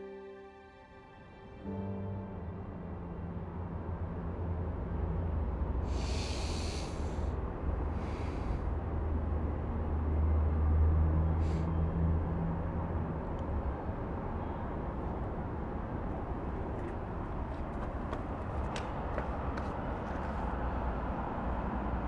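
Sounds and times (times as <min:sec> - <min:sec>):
short hissing breaths: 0:05.9 - 0:08.7.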